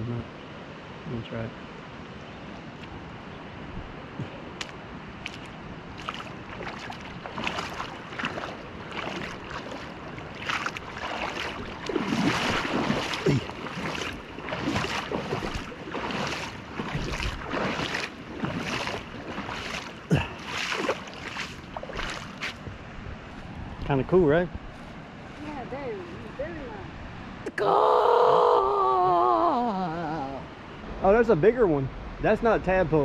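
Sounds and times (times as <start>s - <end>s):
footsteps splashing through creek: 4.5s - 23.8s, 24.6s - 26.4s.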